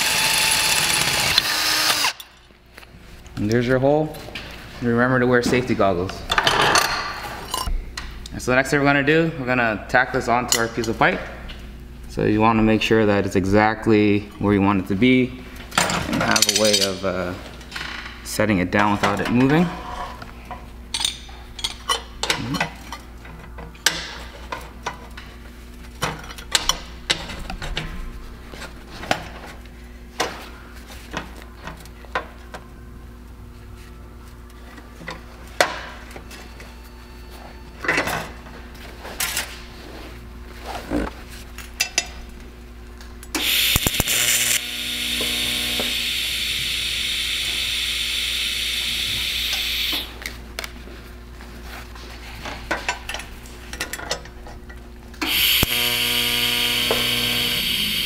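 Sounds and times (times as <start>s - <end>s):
welding arc buzzing hiss: 43.3s - 50.2s, 55.2s - 58.0s.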